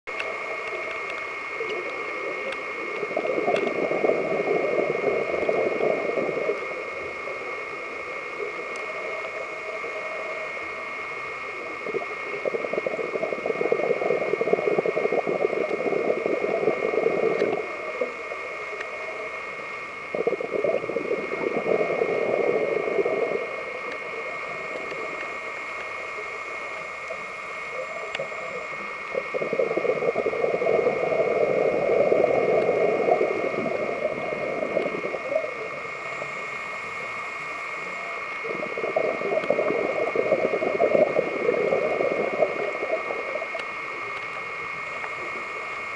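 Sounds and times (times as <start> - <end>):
steady high hum: 0.1 - 45.9
regulator exhalation bubbling: 2.8 - 7.0, 11.7 - 18.1, 20.0 - 23.9, 28.2 - 36.4, 38.4 - 43.6.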